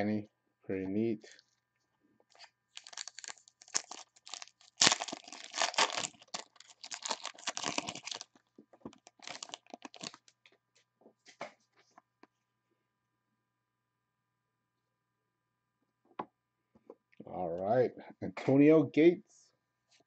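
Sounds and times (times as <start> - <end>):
foil wrapper tearing and crinkling: 2.3 - 10.4.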